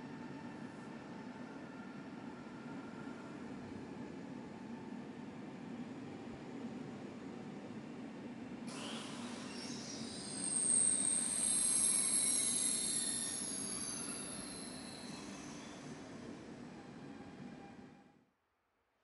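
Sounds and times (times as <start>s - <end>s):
train wheels squealing: 8.7s - 18.0s.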